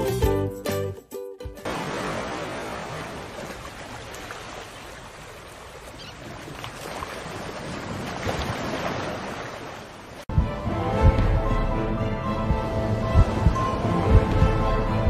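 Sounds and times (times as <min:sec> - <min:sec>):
sea water sloshing around boat: 0:01.6 - 0:10.3
wind: 0:01.6 - 0:15.0.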